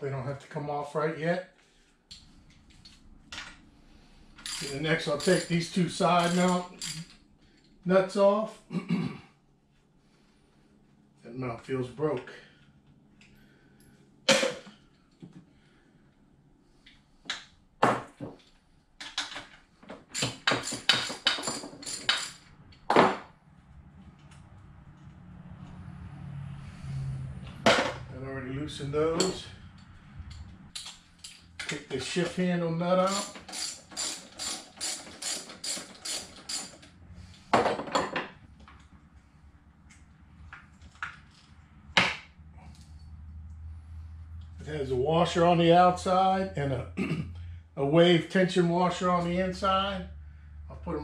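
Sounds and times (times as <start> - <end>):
sharp metal clanks: 4.4 - 7.1
metal tools clanking on motor: 4.4 - 7.8, 18.4 - 23.1, 29.1 - 38.3
socket ratchet wrench clicking: 33.1 - 36.8.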